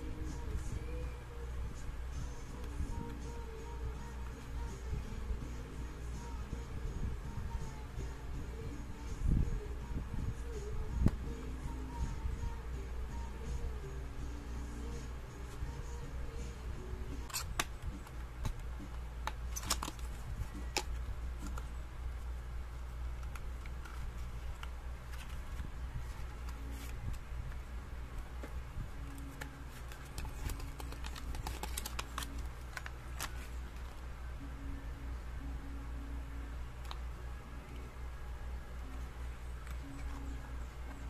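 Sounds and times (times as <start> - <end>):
steady low hum: 0.0 - 41.0
paper box clicks and crinkles: 19.2 - 21.6, 23.2 - 27.2, 28.4 - 34.0.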